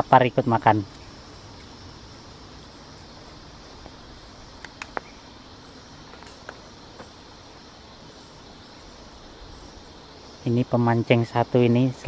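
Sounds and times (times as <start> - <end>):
faint hiss: 0.0 - 12.0
insects chorus: 0.0 - 12.0
sharp clicks: 4.6 - 5.1.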